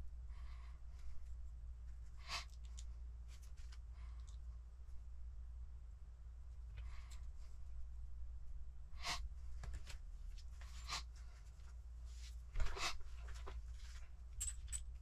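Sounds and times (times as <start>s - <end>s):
low steady hum: 0.0s - 15.0s
small parts clicking and rattling: 13.2s - 15.0s.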